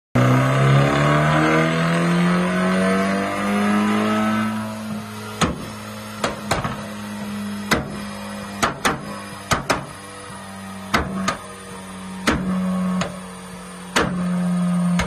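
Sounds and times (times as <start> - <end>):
car engine revving: 0.2 - 15.0
exhaust pops: 4.9 - 10.0.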